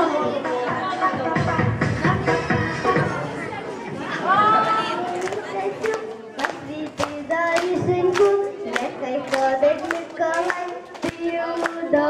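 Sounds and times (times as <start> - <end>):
rhythmic hand clapping: 5.0 - 12.0.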